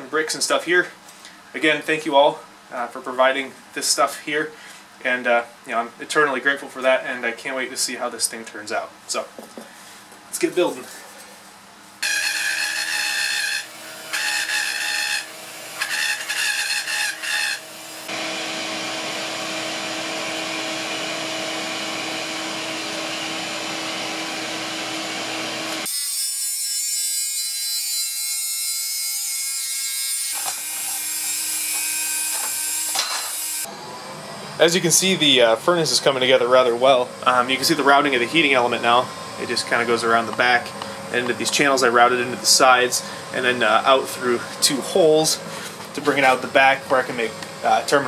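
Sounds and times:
rotary tool whining: 12.0s - 25.9s, 30.3s - 33.7s.

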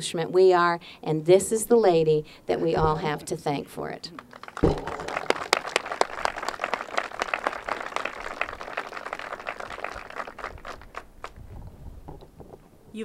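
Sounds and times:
audience applauding: 4.1s - 11.4s.

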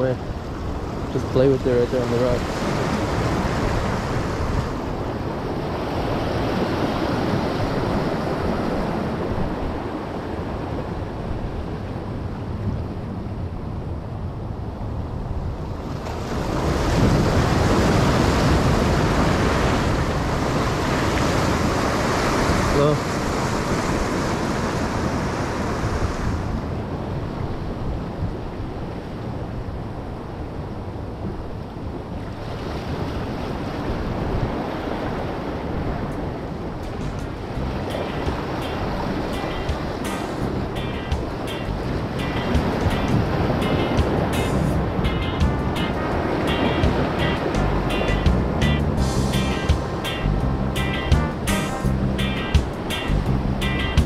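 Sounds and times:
surf washing against rocks: 0.0s - 12.3s, 15.7s - 27.7s, 32.1s - 48.0s
wind buffeting microphone: 0.0s - 54.0s.

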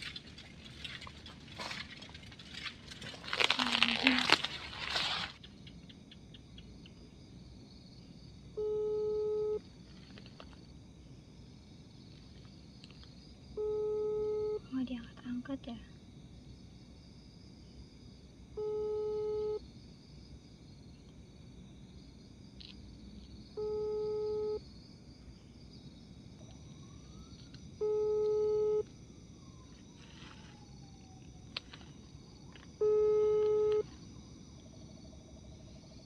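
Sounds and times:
telephone ringback tone: 8.6s - 9.6s, 13.6s - 14.6s, 18.6s - 19.6s, 23.6s - 24.6s, 27.8s - 28.8s, 32.8s - 33.9s.

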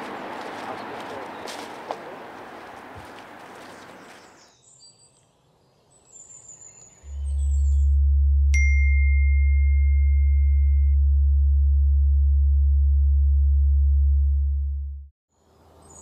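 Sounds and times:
deep electronic hum: 7.0s - 15.1s
high ringing ping: 8.6s - 10.8s.

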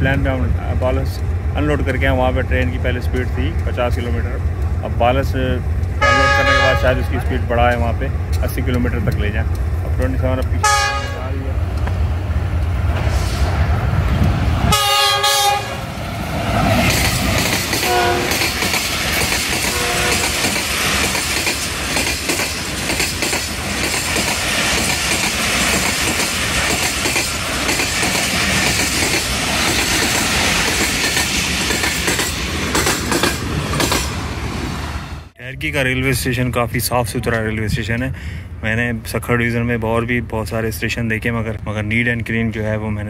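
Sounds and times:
diesel locomotive rumbling: 0.0s - 43.0s
train wheels clattering on rails: 0.1s - 6.6s, 16.3s - 34.3s
train horn blast: 6.0s - 7.4s, 10.6s - 11.4s, 14.7s - 15.8s, 17.8s - 18.4s, 19.6s - 20.5s.

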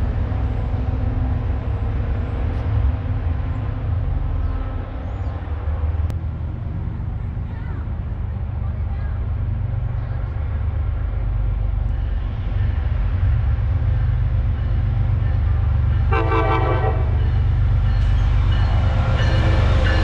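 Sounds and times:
train rumble: 0.0s - 20.0s
train horn: 16.0s - 17.3s.

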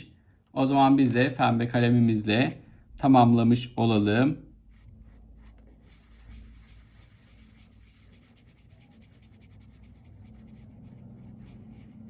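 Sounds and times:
marker scribbling on paper: 4.7s - 12.0s.

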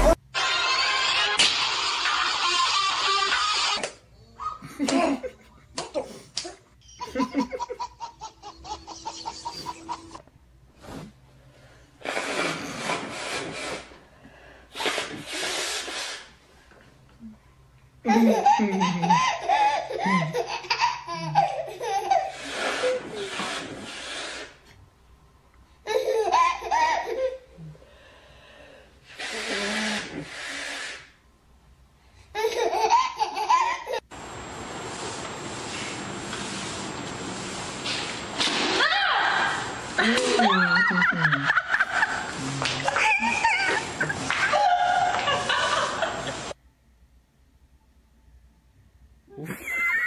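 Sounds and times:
babies laughing: 0.0s - 6.0s, 6.8s - 10.2s, 18.0s - 23.4s, 25.9s - 27.5s, 32.4s - 34.1s, 40.0s - 46.5s
steady hiss: 34.1s - 38.8s, 39.4s - 46.6s.

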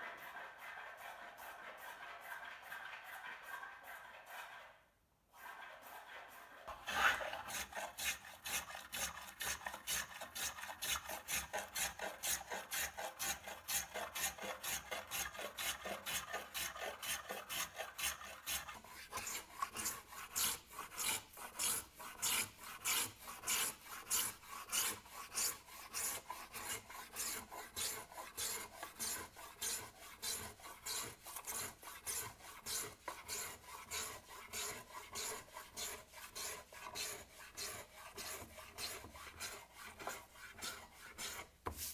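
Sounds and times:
hand plane shaving wood: 0.0s - 41.9s.

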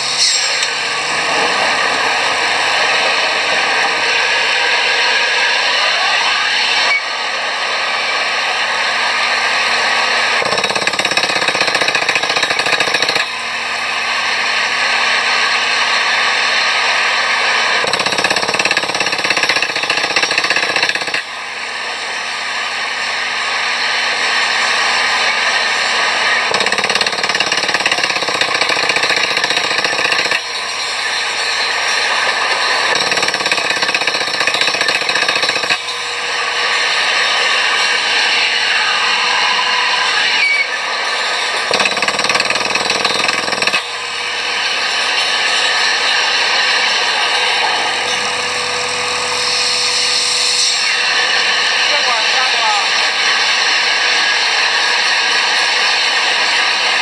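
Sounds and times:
drilling rig hammering rattle: 9.6s - 21.8s, 24.5s - 38.2s, 40.9s - 51.9s.

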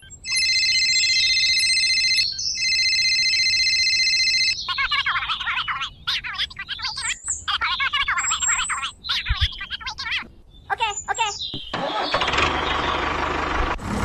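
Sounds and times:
electronic telephone ringtone: 0.0s - 5.0s
rapid birdlike chirping: 0.0s - 13.3s.

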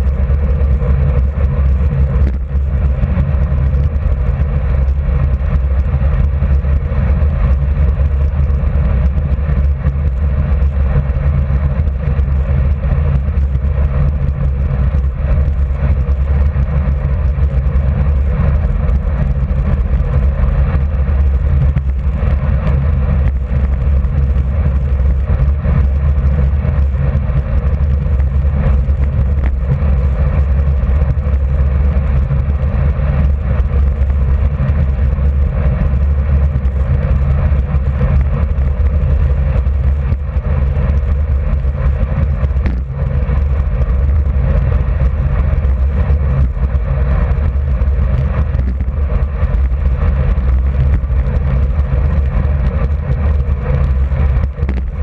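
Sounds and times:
wind on microphone: 0.0s - 55.0s.

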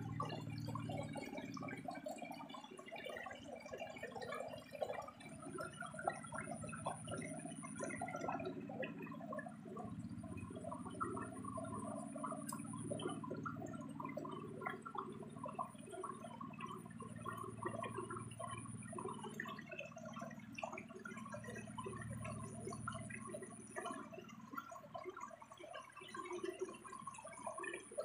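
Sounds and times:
water gurgling and splashing: 0.0s - 28.0s.

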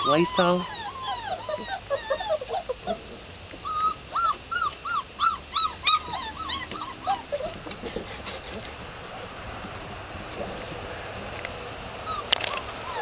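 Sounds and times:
puppies whimpering: 0.0s - 8.9s, 12.0s - 13.0s.

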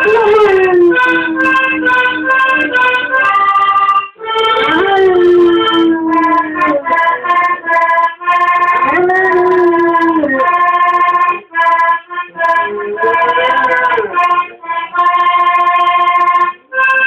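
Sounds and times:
dog howling: 0.0s - 2.8s, 4.6s - 7.8s, 8.6s - 10.8s, 12.4s - 14.4s.

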